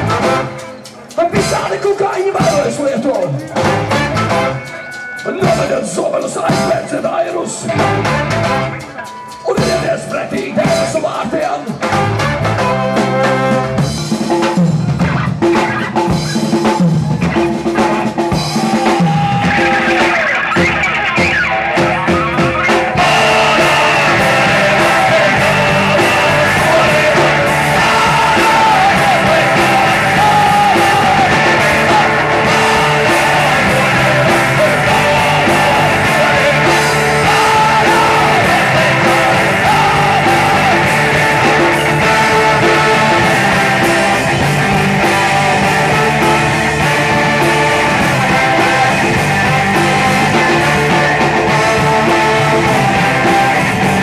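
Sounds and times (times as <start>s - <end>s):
saxophone: 0.0s - 1.1s, 3.5s - 5.4s, 7.6s - 9.5s, 11.8s - 14.2s
trombone: 0.0s - 1.8s, 3.4s - 6.8s, 7.6s - 10.9s, 11.7s - 14.6s, 19.3s - 54.0s
bass guitar: 0.0s - 54.0s
drums: 0.0s - 54.0s
electric guitar: 0.0s - 54.0s
person singing: 9.1s - 11.8s, 22.0s - 54.0s.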